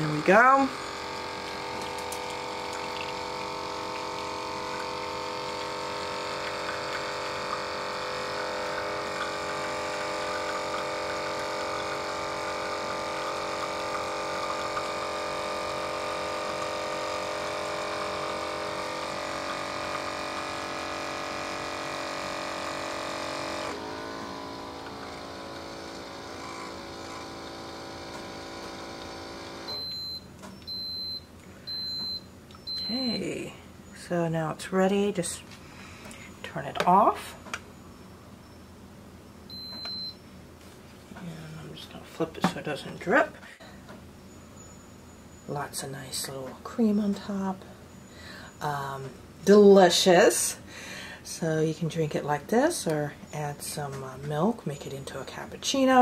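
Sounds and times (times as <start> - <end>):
espresso machine pump humming: 0.0 - 34.3, 39.3 - 46.7
short high beeps: 39.4 - 40.3.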